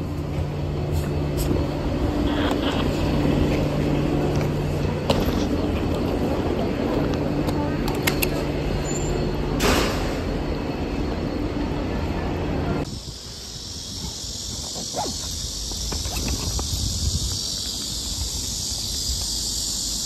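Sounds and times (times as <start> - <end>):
wheels rumbling over paving stones: 2.3 - 8.2
steady high hiss: 12.8 - 20.0
dogs whining: 14.5 - 15.4.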